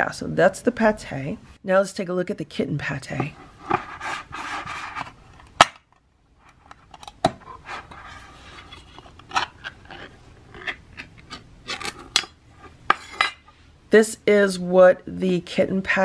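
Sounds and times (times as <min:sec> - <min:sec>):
can lid scraping and crackling: 0:06.5 - 0:13.2.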